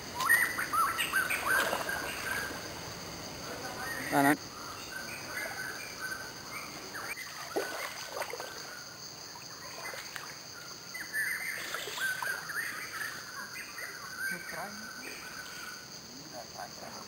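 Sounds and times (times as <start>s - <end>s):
insect drone: 0.0s - 17.0s
bird chirps: 0.2s - 2.6s, 10.9s - 15.9s
water sloshing around wading person: 1.3s - 2.6s, 7.1s - 10.5s, 11.4s - 12.5s.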